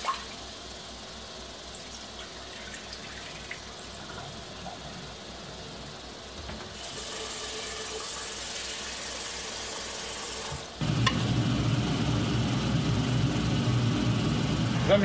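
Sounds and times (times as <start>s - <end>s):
low mechanical hum: 0.0s - 15.0s
tap water running into pot: 1.7s - 5.2s.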